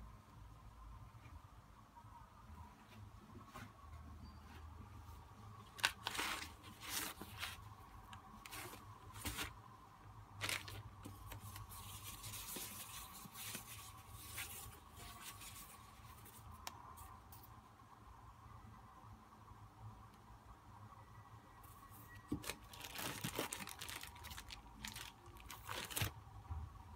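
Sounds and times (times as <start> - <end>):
plastic wrapping crinkling: 5.7 - 9.6, 10.4 - 16.5, 22.3 - 26.2.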